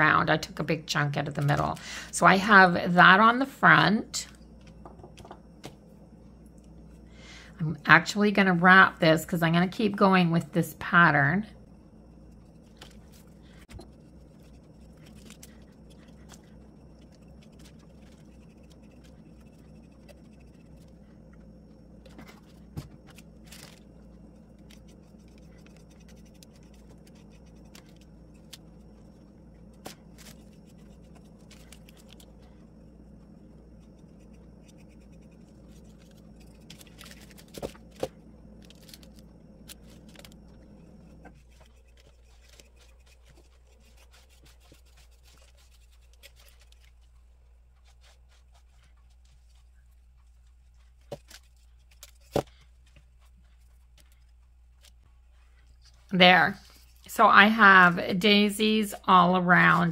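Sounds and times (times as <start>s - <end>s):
low hum: 0.0s - 59.9s
paintbrush scraping: 12.1s - 21.3s, 21.9s - 32.7s, 33.3s - 37.9s, 38.6s - 57.8s.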